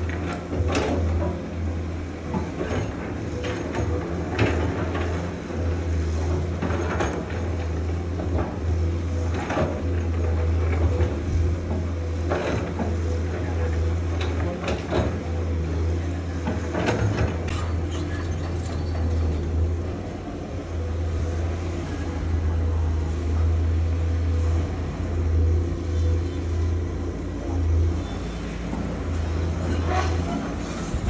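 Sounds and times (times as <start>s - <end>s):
diesel machinery engine drone: 0.0s - 31.0s.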